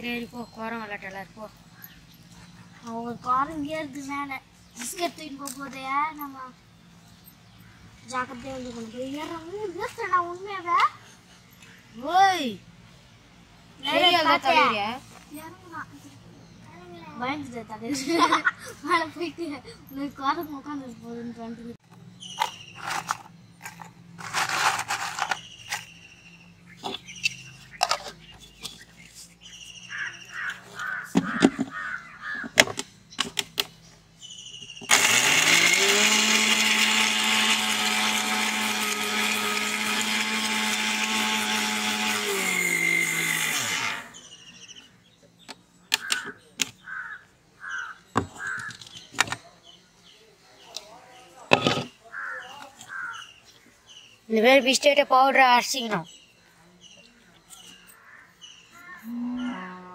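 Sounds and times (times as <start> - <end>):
mixer grinder motor whining: 34.9 - 44.2.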